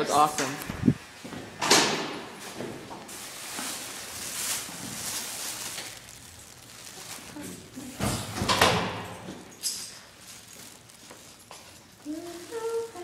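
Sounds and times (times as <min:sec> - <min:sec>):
phone microphone handling noise: 0:00.6 - 0:01.0
rustling against clothing: 0:02.4 - 0:08.3, 0:09.3 - 0:13.0.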